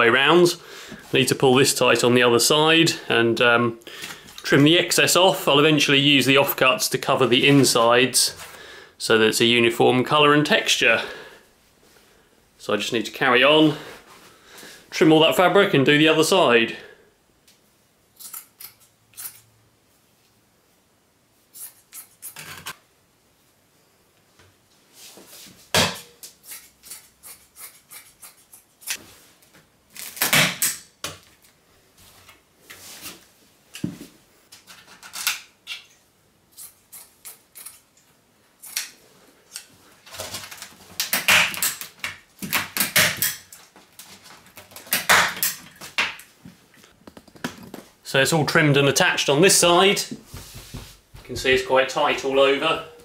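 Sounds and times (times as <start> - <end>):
fabric rustling: 50.2 - 51.7.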